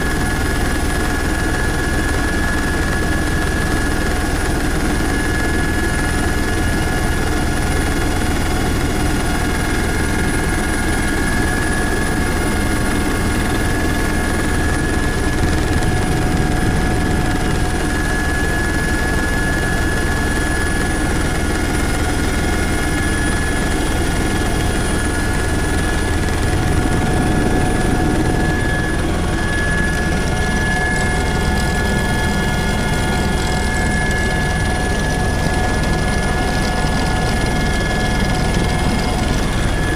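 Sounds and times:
helicopter engine and rotor noise: 0.0 - 39.9
high whine: 14.4 - 20.4, 22.5 - 39.9.

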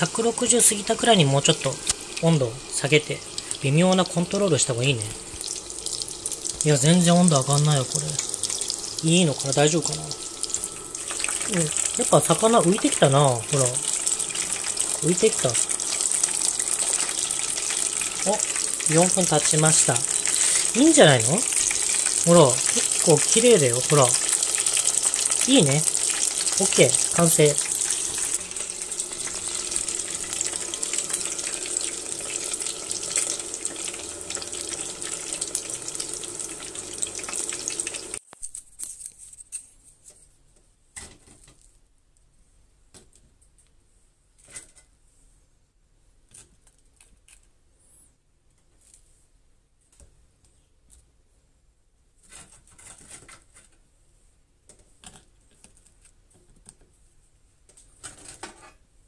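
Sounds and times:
hot oil sizzling and crackling: 0.0 - 38.3.

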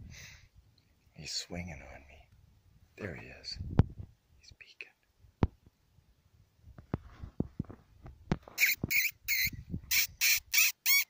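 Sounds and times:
man making high squawking calls: 8.6 - 11.0.

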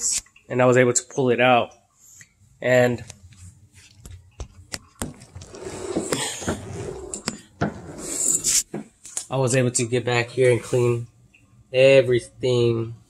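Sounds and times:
rustling rubbing noise: 5.3 - 7.2.

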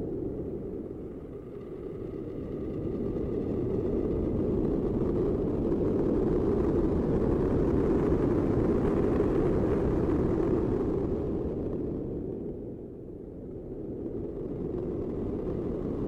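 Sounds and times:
dark ambient drone: 0.0 - 16.0.

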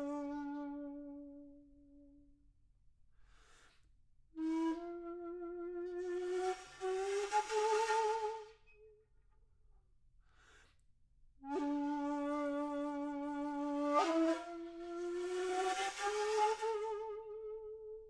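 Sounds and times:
solo flute: 0.0 - 2.3, 4.4 - 9.0, 11.4 - 18.0
faint breath: 3.2 - 3.9, 10.2 - 10.8.

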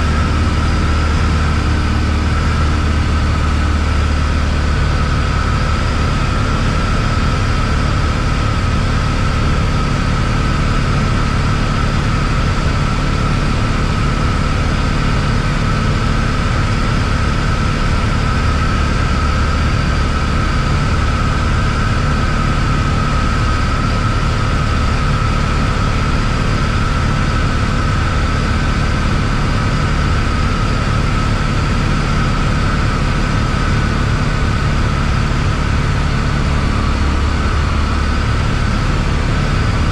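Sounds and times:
airplane engine and propeller drone: 0.0 - 39.9
steady high whine: 0.0 - 39.9.

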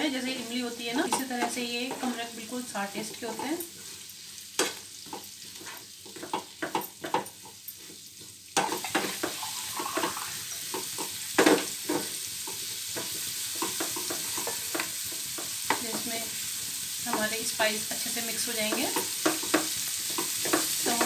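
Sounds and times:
fruit sizzling in oil: 0.0 - 21.0
spatula scraping pan: 0.2 - 7.2, 7.8 - 11.2.

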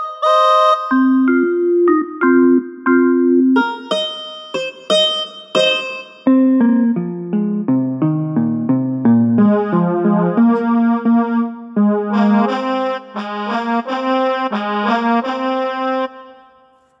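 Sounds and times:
phone ringtone melody: 0.2 - 6.9.

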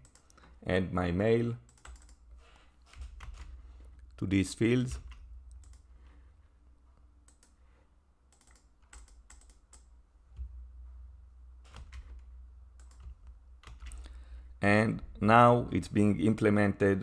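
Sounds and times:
low steady hum: 0.0 - 17.0
keyboard keystrokes: 8.3 - 10.5, 12.8 - 14.0.

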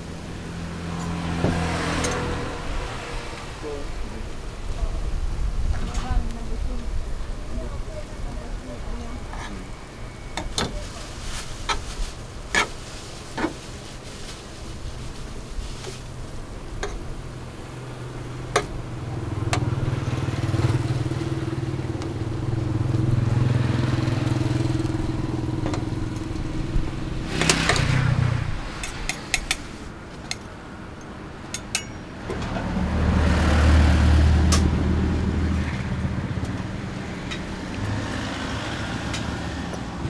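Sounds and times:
metal spatula scrape: 12.5 - 14.2, 27.2 - 29.9
engine running: 15.9 - 40.0
metal tongs clicking: 30.3 - 32.0.

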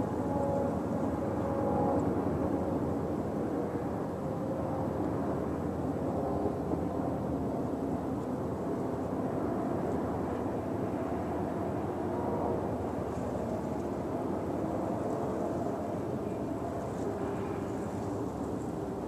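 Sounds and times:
distant diesel locomotive droning: 0.0 - 5.8, 10.4 - 19.0.

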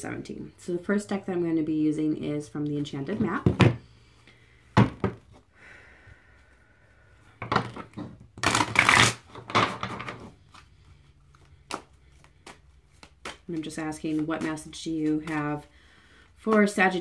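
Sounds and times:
cards shuffling and flapping: 7.7 - 15.7.

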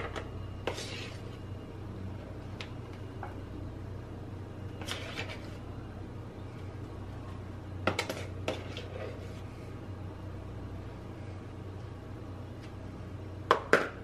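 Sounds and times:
steady low hum: 0.0 - 14.0
spoon scraping plastic bowl: 0.6 - 1.4, 4.8 - 5.6, 8.0 - 9.4.

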